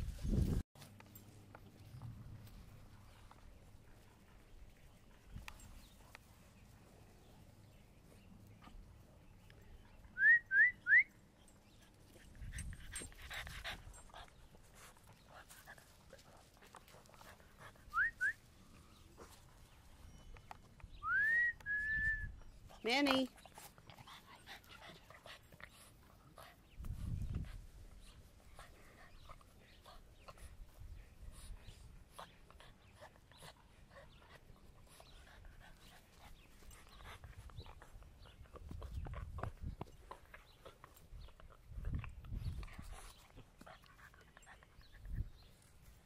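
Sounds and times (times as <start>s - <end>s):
puppies rustling in dry grass: 0.0s - 10.0s, 11.3s - 21.1s, 22.4s - 46.0s
person whistling: 10.2s - 11.1s, 17.9s - 18.4s, 21.0s - 22.3s.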